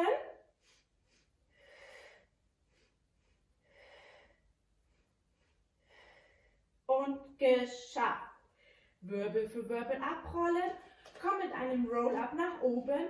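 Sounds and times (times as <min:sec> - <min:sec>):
woman breathing: 0:00.4 - 0:06.9, 0:08.4 - 0:09.0.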